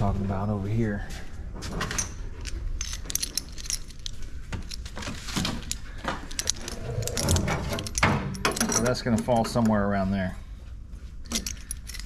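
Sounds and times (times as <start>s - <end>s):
small metal parts clinking: 1.8s - 9.7s, 11.2s - 12.0s.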